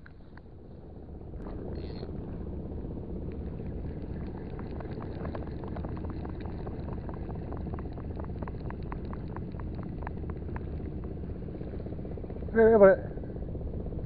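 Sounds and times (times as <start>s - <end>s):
low rumble: 0.0s - 14.0s
fishing reel clicking: 1.7s - 2.1s.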